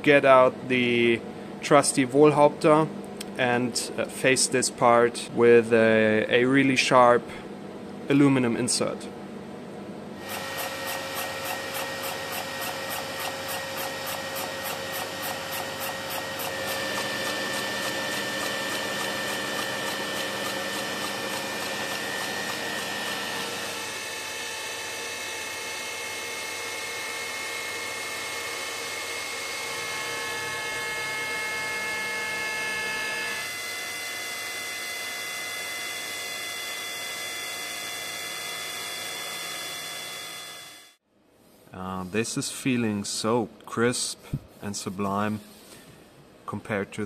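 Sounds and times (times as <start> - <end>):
rapid ticking of milling cutter: 10.2 - 24.2
milling machine spindle gear whine: 10.2 - 40.8.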